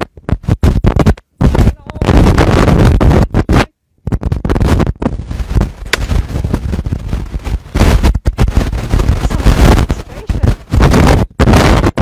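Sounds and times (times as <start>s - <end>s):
rough microphone noise: 0.0s - 12.0s
musket shot: 5.9s - 6.3s.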